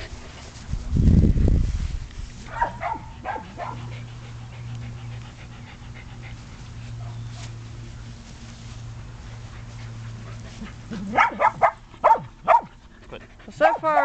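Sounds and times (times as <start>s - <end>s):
steady low hum: 0.0s - 14.0s
dog yipping: 2.5s - 3.8s, 11.1s - 12.7s
dog panting: 2.8s - 7.9s, 9.1s - 14.0s.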